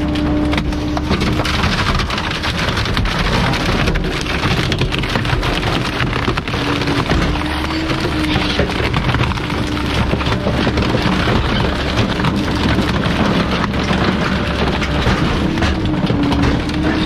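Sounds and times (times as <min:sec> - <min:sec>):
garbage truck compactor crushing: 0:00.0 - 0:17.0.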